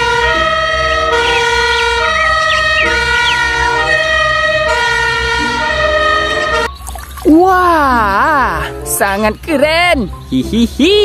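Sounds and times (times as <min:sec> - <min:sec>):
two-tone emergency siren: 0:00.0 - 0:06.8
vehicle engine rumble: 0:00.0 - 0:11.0.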